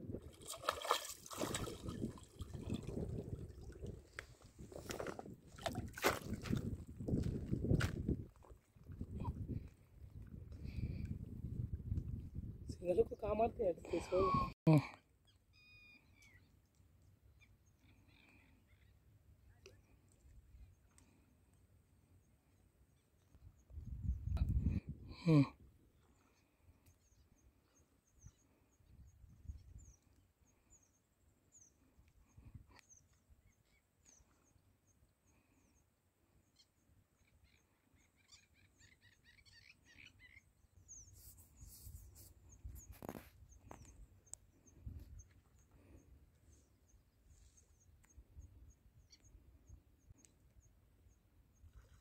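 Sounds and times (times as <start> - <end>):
regular high chirp: 15.3 - 16.5.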